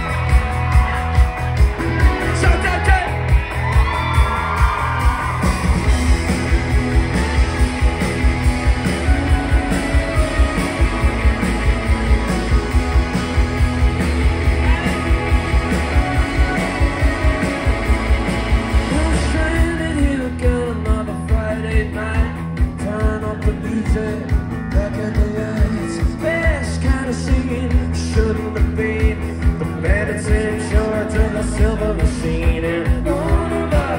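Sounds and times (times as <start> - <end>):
electric guitars: 0.0 - 33.9
steady drum beat: 0.0 - 33.9
lead vocal singing: 18.8 - 33.9.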